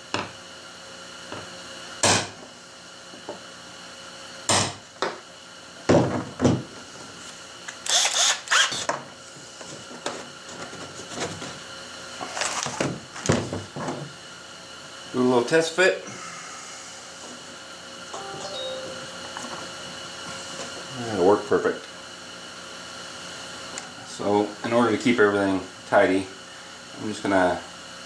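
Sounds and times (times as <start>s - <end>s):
power drill boring plastic: 7.8s - 8.9s.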